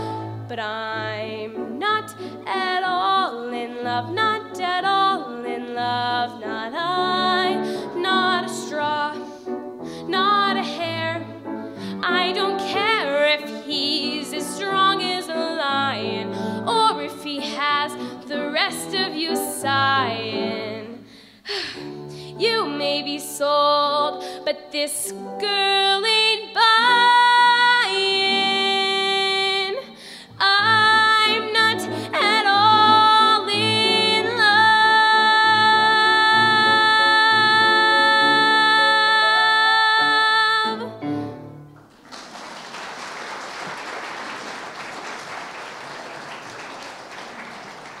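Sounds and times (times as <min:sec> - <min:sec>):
girl singing: 0:00.0 - 0:09.2, 0:10.1 - 0:11.2, 0:12.0 - 0:21.0, 0:22.4 - 0:40.9
piano accompaniment: 0:00.0 - 0:42.1
audience applauding: 0:41.9 - 0:48.0.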